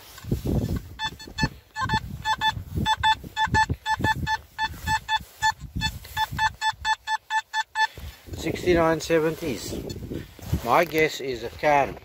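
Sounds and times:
metal detector beeping: 0.0 - 10.3.

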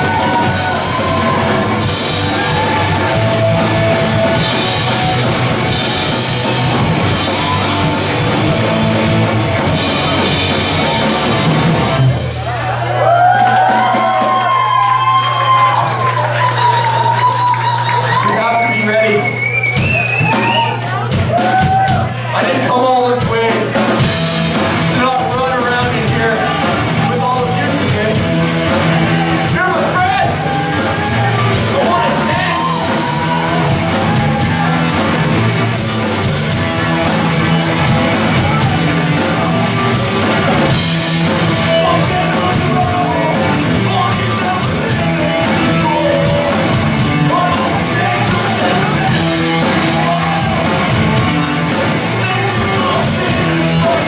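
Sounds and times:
electric guitars: 0.0 - 12.5, 23.2 - 54.0
bass guitar: 0.0 - 54.0
drums: 0.0 - 54.0
person singing: 29.6 - 34.7, 41.3 - 54.0.

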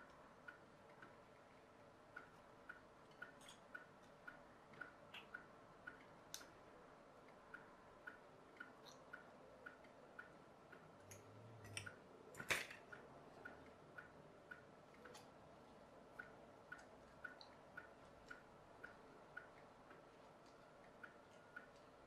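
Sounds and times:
faint clock ticking: 0.0 - 22.0
tinplate and pliers clicking: 11.0 - 13.0.

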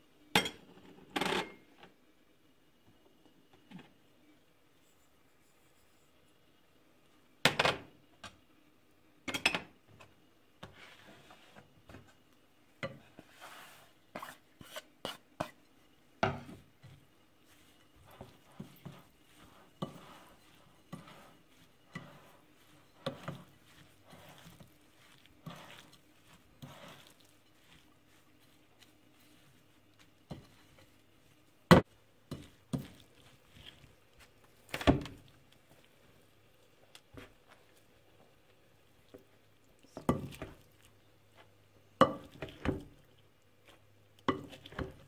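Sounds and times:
spoon scraping a glass bowl: 18.0 - 29.5.

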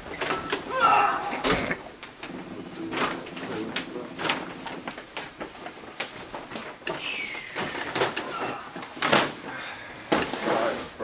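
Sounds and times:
paper bags rustling and bumping: 0.0 - 11.0.

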